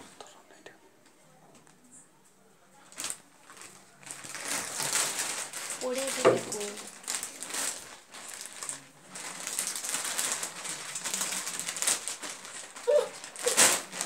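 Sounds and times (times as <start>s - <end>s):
plastic wrapping crinkling: 2.9s - 14.0s.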